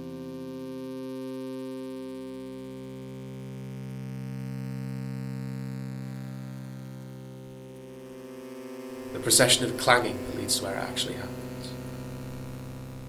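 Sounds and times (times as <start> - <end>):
synthesizer drone chord: 5.6 - 13.0.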